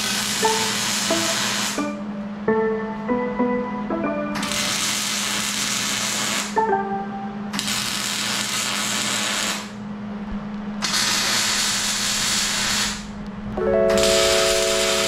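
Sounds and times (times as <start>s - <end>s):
welder arc sizzling: 0.0s - 1.9s, 4.4s - 6.6s, 7.6s - 9.8s, 10.8s - 13.1s, 13.9s - 15.0s
background music with low note: 0.0s - 8.1s, 13.6s - 15.0s.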